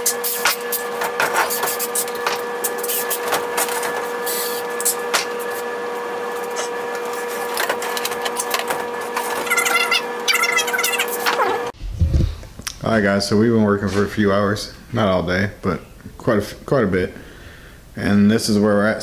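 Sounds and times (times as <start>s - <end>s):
steady mechanical whine: 0.0s - 11.8s.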